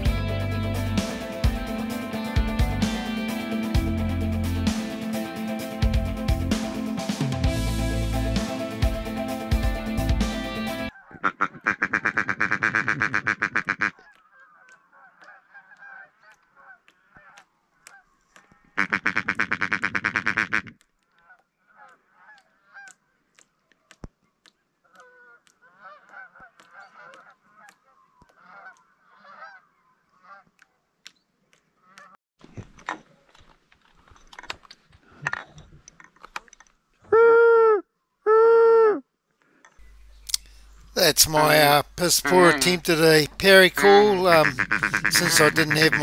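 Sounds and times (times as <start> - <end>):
distant waterfowl calling: 10.8 - 24.0, 24.8 - 30.8, 39.8 - 46.0
person imitating duck calls: 11.0 - 14.2, 18.8 - 20.8, 37.1 - 39.0, 41.0 - 46.0.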